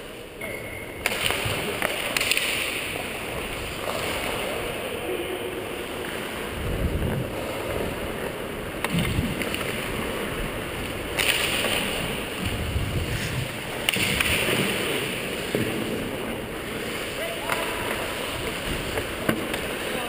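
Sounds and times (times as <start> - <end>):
wind on microphone: 6.5 - 8.1, 8.9 - 11.2, 11.8 - 14.6, 17.6 - 19.2
ice skate blades scraping ice: 11.2 - 20.0.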